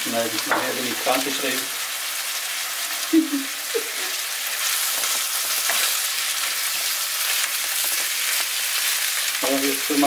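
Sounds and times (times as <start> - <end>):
food sizzling in a frying pan: 0.0 - 10.0
spoon scraping a pan: 4.5 - 8.9.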